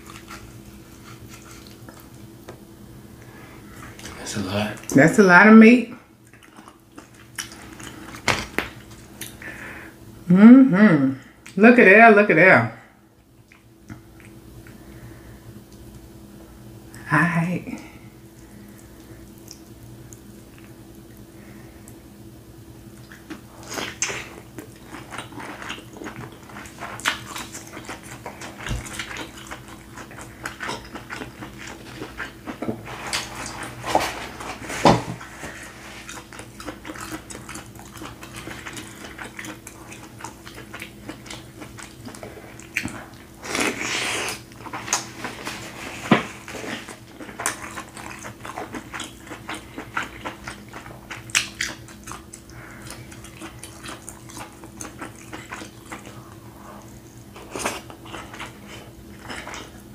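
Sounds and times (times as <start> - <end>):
faint steady hum: 0.0 - 59.9
chewing and wet mouth smacks: 1.1 - 2.3, 13.3 - 14.8, 18.7 - 21.2, 22.9 - 33.8, 36.0 - 45.3, 46.6 - 56.2.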